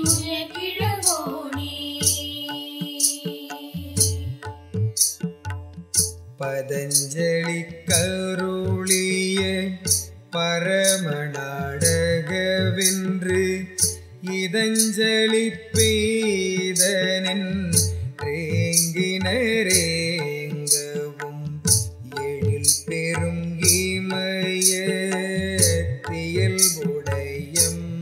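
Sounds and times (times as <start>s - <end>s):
bright percussion strikes: 0.0s - 10.2s.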